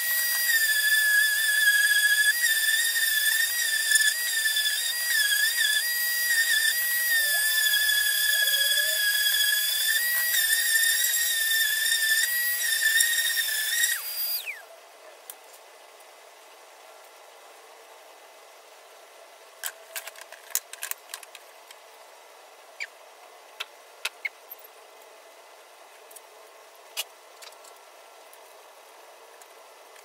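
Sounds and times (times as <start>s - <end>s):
orbital sander whining: 0.0s - 14.6s.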